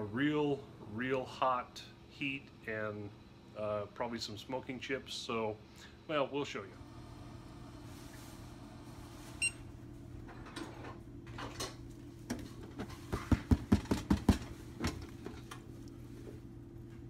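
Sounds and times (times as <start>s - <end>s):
circulator humming: 6.7s - 10.4s
plastic container knocks and rattles: 13.1s - 15.0s.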